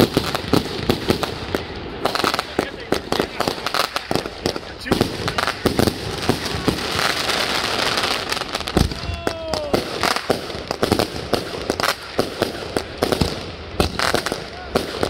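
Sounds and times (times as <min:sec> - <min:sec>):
fireworks bangs: 0:00.0 - 0:15.0
fireworks crackling: 0:00.0 - 0:15.0.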